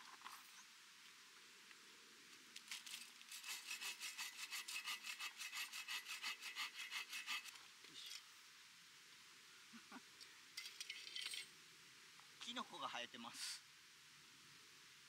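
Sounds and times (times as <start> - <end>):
hand saw cutting wood: 3.2 - 7.6.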